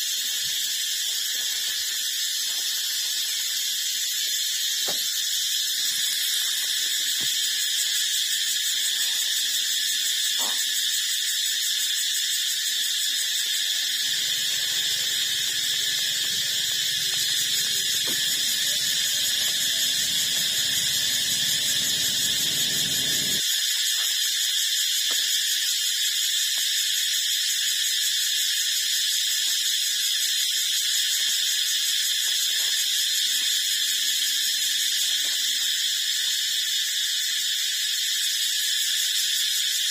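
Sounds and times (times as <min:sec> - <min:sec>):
high-pitched hissing whine: 0:00.0 - 0:25.1.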